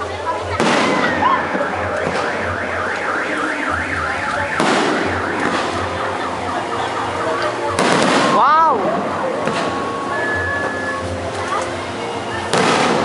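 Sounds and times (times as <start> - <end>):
fireworks bursting: 0.4 - 11.7, 12.4 - 13.0
loud crackling burst: 0.5 - 9.9, 12.5 - 13.0
car alarm warbling: 0.8 - 11.2.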